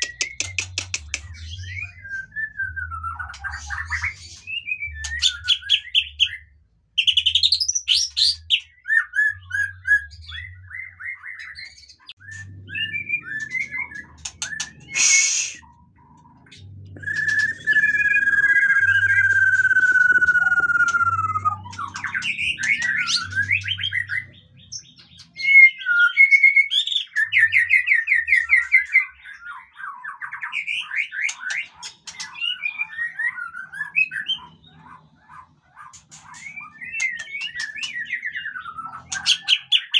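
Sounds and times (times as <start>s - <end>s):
sharp click: 0.0s - 1.3s
bird singing whistles and trills: 0.0s - 34.9s, 36.1s - 39.9s.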